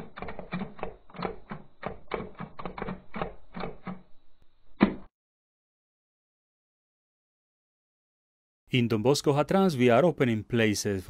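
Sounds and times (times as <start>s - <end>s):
typewriter keystrokes: 0.0s - 4.0s.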